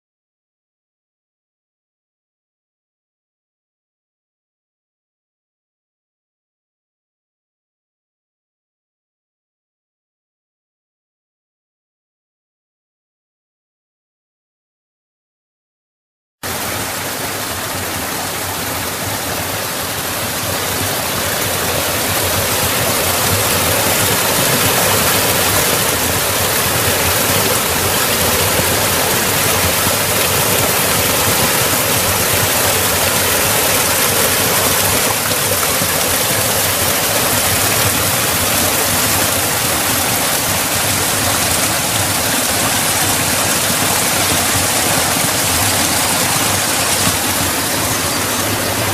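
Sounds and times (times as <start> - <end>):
water rushing down rock cascade: 16.4 - 48.9.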